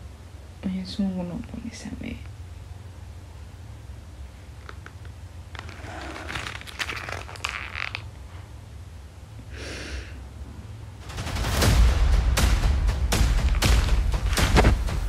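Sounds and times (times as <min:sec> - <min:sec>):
paper crinkling and rustling: 0:05.5 - 0:08.1, 0:13.4 - 0:14.9
dramatic music: 0:11.0 - 0:15.0
deep boom: 0:11.1 - 0:15.0.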